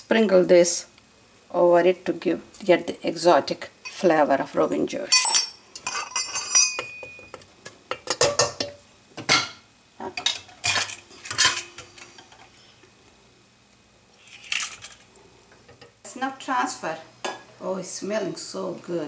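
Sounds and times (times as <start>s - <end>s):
ringing metallic clinks: 5.1s - 7.3s
wooden spatula scraping metal pot: 5.8s - 7.5s.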